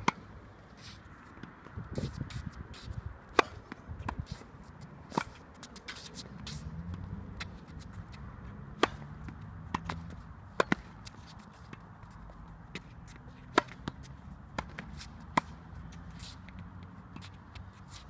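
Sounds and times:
racket striking tennis balls: 0.0 - 18.0
balls bouncing on hard court: 7.3 - 15.6.

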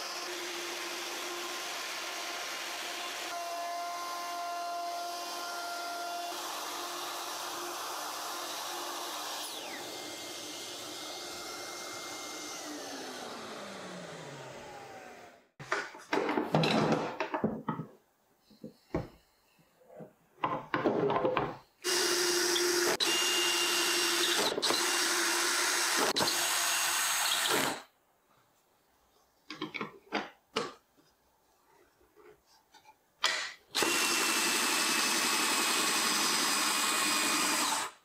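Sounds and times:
cordless drill driving screws: 21.8 - 27.9, 33.8 - 38.0.

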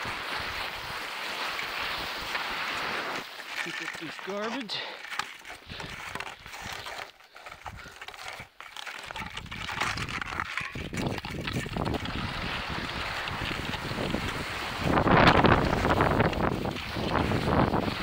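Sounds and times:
snow hissing and scraping: 0.0 - 4.8, 11.7 - 18.0
wind rumbling on microphone: 9.2 - 18.0.

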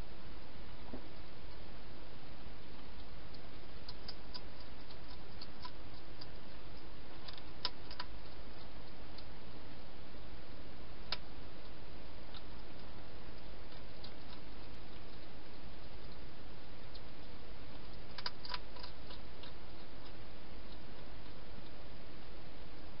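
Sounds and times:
steady hiss: 0.0 - 23.0
hedgehog eating clicks and crunches: 2.6 - 9.4, 11.0 - 22.0.

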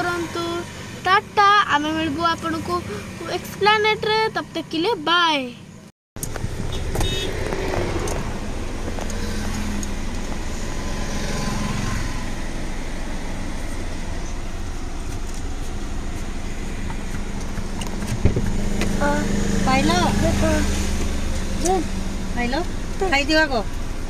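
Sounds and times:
car cabin hum and rumble: 6.2 - 24.0.

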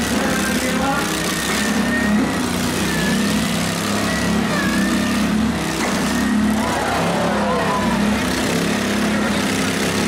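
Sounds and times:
small lawn mower engines running: 0.0 - 10.0.

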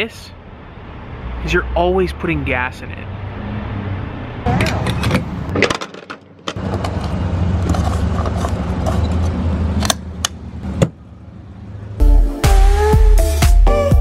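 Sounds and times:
music with a beat: 12.0 - 14.0.

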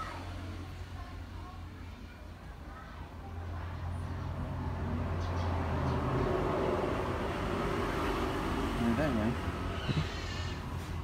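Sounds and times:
vehicle engine hum: 3.2 - 11.0.

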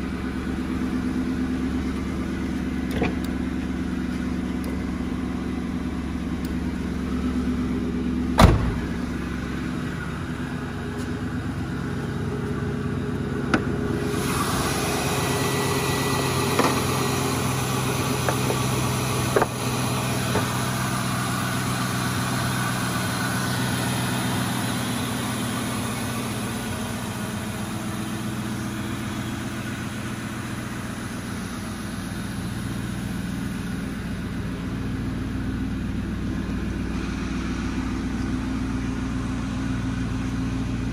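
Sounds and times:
car engine idling: 0.0 - 40.9
loud thump: 8.4 - 9.0.

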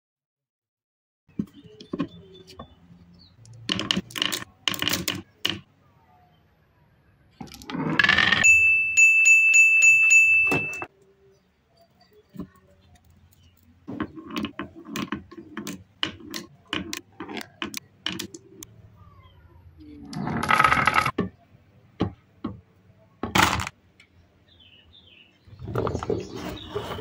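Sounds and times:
high ringing tone: 8.4 - 10.9.

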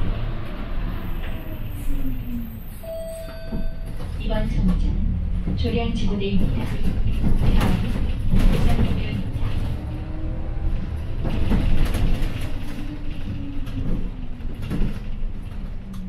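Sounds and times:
bus engine and road rumble: 0.0 - 16.0
knocks and rattles: 3.5 - 9.9, 10.8 - 15.9.

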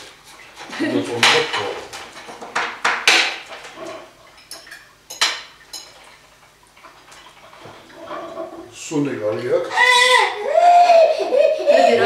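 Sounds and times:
cutlery clinking on a ceramic plate: 3.8 - 6.0.

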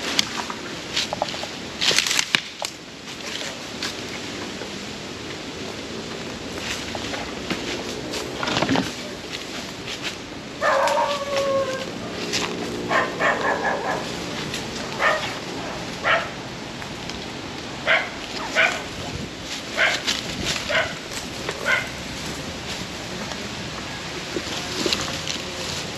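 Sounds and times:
dog barking: 10.6 - 11.6, 12.9 - 14.1, 15.0 - 16.4, 17.8 - 18.9, 19.8 - 20.1, 20.7 - 21.0, 21.6 - 21.9
dog whining: 10.6 - 11.9.

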